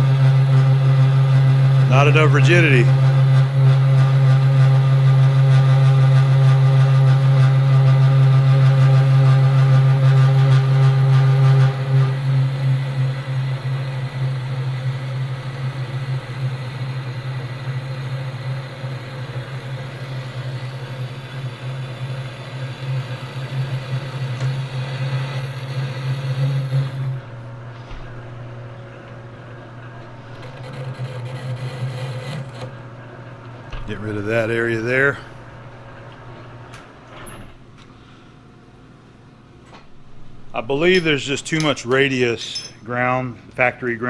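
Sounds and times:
metal lathe cutting chatter: 1.9 - 3.6, 12.1 - 27.2, 30.4 - 32.7.

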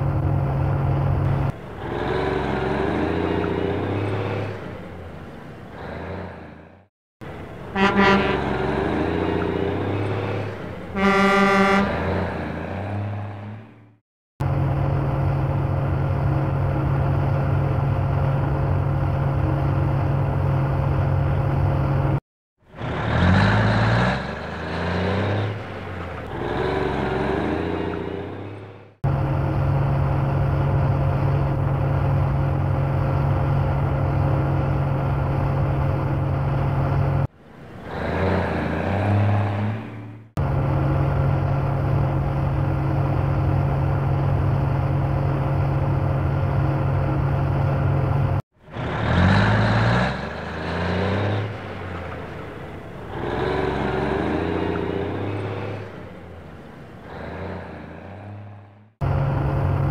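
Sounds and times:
diesel engine running: 0.0 - 59.9
truck engine revving: 0.0 - 59.9
truck horn blast: 7.4 - 14.0.

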